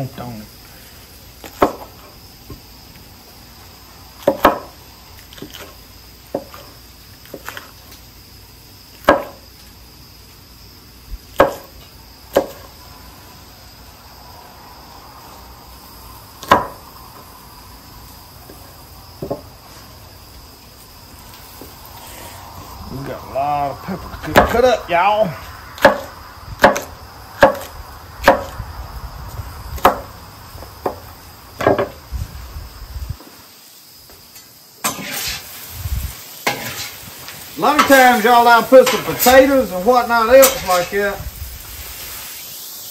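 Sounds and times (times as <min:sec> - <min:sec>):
crickets chirping: 0:00.0 - 0:42.9
knife chopping on cutting board: 0:04.3 - 0:04.7, 0:09.0 - 0:09.4, 0:11.4 - 0:11.7, 0:25.8 - 0:28.6.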